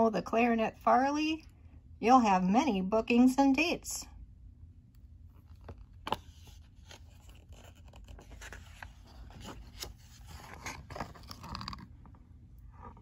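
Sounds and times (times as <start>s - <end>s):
book pages turning: 5.3s - 12.2s.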